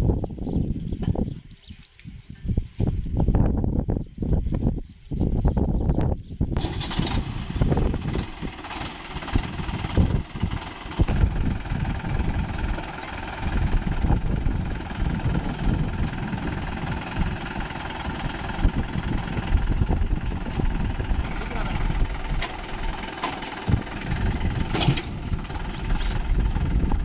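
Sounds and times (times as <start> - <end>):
tractor diesel engine idling: 6.6 - 27.0.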